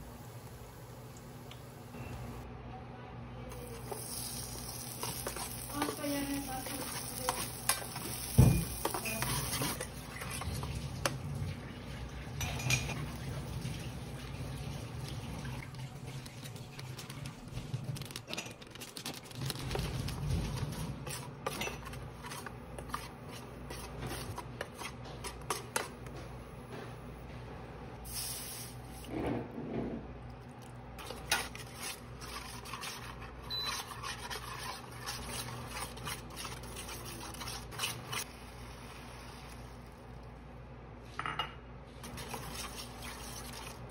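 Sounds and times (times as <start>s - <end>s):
metal spoon scraping frying pan: 3.6s - 10.4s, 21.0s - 25.9s, 31.0s - 38.3s.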